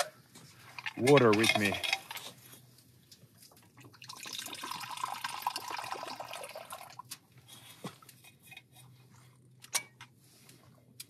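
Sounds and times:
liquid pouring into a cup: 3.8s - 7.1s.

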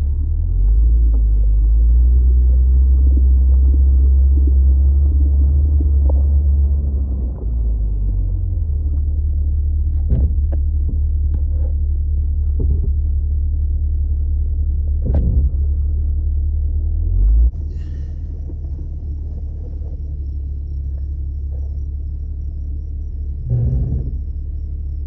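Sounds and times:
suv engine rumble: 0.0s - 25.0s.

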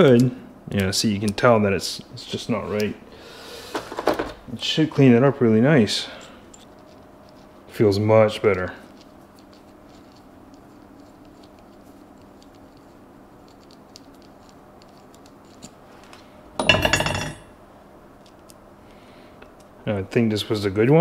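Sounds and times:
metal tools clattering: 16.6s - 17.5s.

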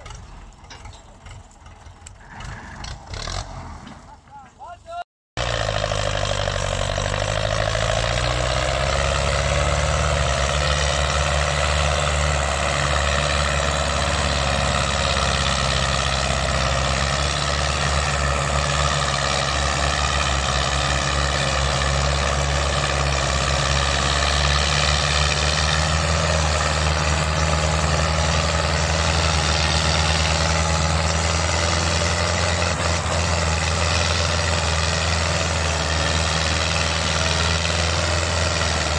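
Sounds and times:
tractor diesel engines under load: 0.0s - 38.9s.

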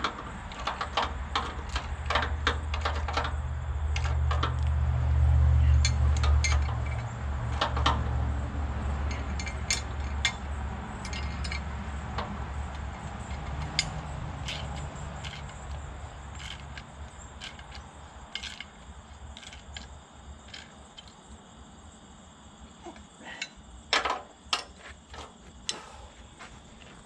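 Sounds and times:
metal parts clanking: 0.0s - 4.6s, 5.7s - 8.1s, 9.1s - 21.2s
steady low rumble: 0.0s - 22.8s.

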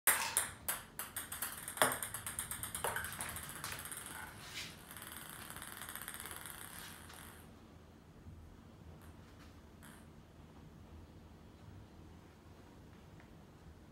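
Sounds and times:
ping pong ball bouncing on tile: 0.1s - 7.5s.

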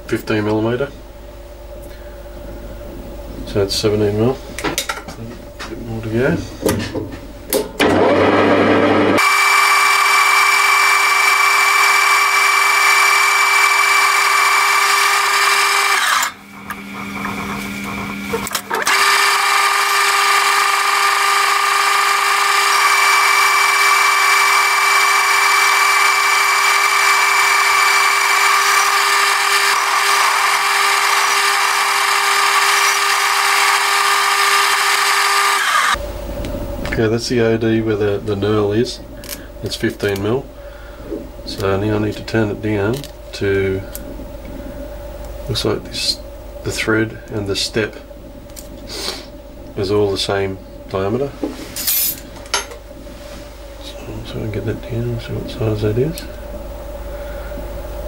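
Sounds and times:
metal lathe whining: 7.9s - 36.0s.

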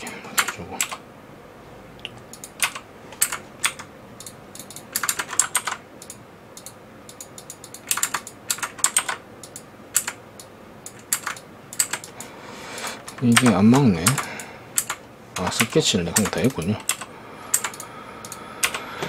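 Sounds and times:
keyboard keys clicking: 2.3s - 10.2s, 10.9s - 12.2s, 13.0s - 18.8s.

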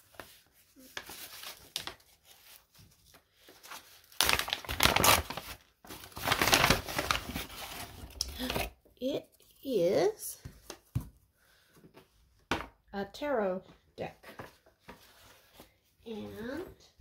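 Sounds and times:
paper bag rustling: 1.1s - 8.2s.

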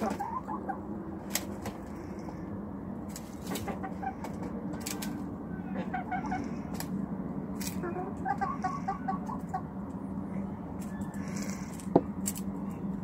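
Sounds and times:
hens clucking softly: 0.0s - 0.9s, 3.4s - 7.0s, 7.7s - 9.9s
hens pecking: 0.0s - 10.0s.

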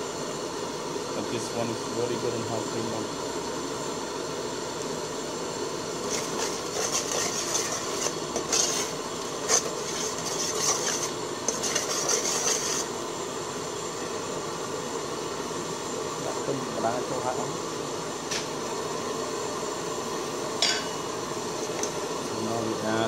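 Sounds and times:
steady hiss: 0.0s - 23.0s
curry bubbling: 5.6s - 13.0s
ladle scraping a pot: 6.0s - 12.9s.

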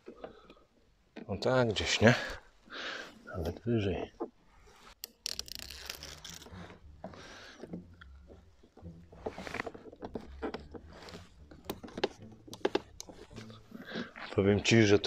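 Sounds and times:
rustling and peeling of tape: 3.4s - 15.0s.

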